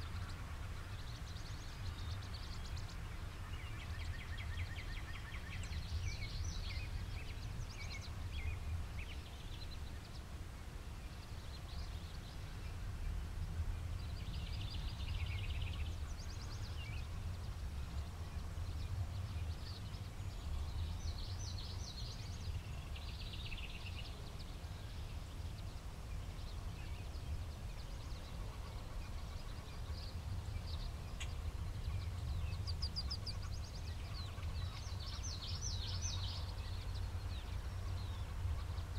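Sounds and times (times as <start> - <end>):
birds chirping and trilling: 13.8 - 38.9.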